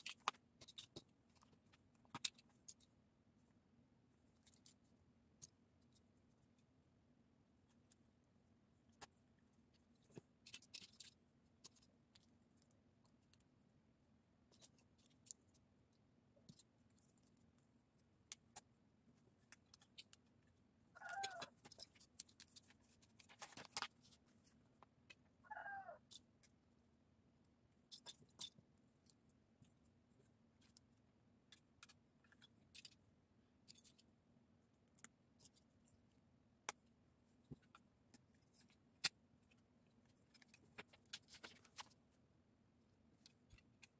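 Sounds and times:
brief animal cry: 25.5s - 26.0s.

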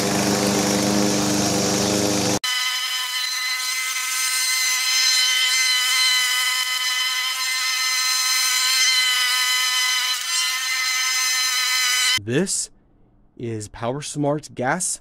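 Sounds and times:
lawn mower running: 0.0s - 2.4s.

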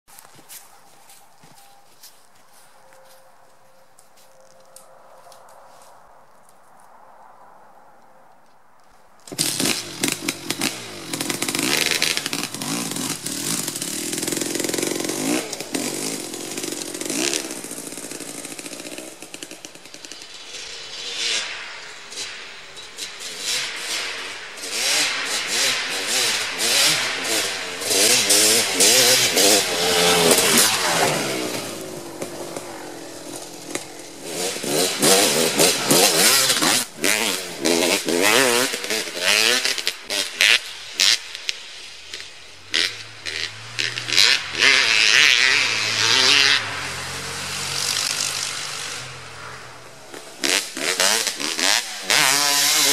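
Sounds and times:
motorcycle exhaust through gears: 9.2s - 52.9s
motocross engine kick-started: 9.3s - 20.3s
engine revving in blips: 22.9s - 41.2s, 42.2s - 52.9s.

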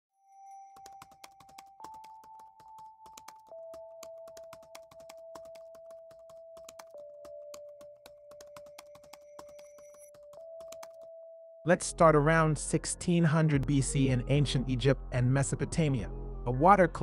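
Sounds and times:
keyboard typing clicks: 0.8s - 11.1s.

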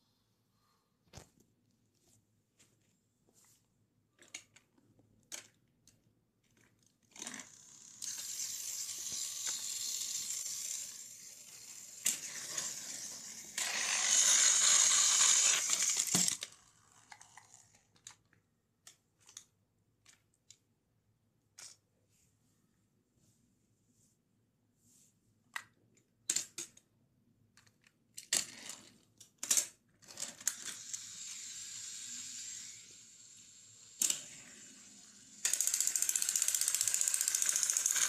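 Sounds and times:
toy train motors whirring: 7.1s - 18.2s, 28.2s - 38.0s.

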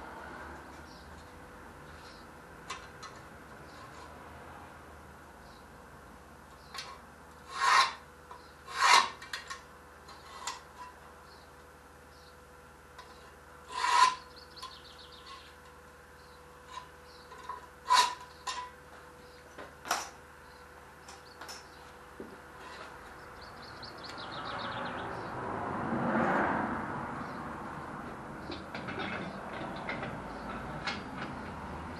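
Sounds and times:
hand tool scraping iron sheet: 6.8s - 8.0s, 8.6s - 11.0s, 13.0s - 15.5s, 16.7s - 18.7s.

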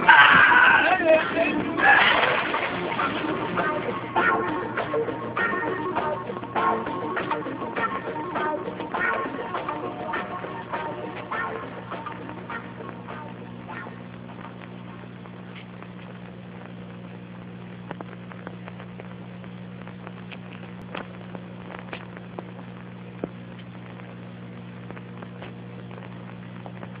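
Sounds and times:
low electrical hum: 0.0s - 27.0s
film crackle clicks and pops: 10.7s - 27.0s.

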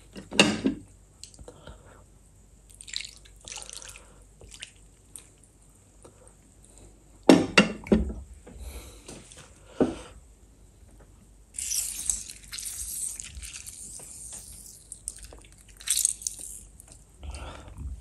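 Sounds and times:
gravy pouring and dripping: 2.7s - 5.6s, 11.6s - 17.1s
wet handling noises: 11.6s - 17.1s.

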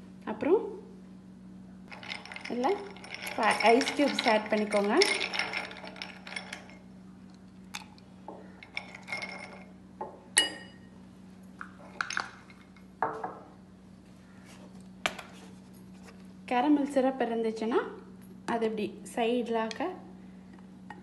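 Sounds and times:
ice cubes clinking in glass: 1.9s - 6.8s, 8.6s - 9.7s.

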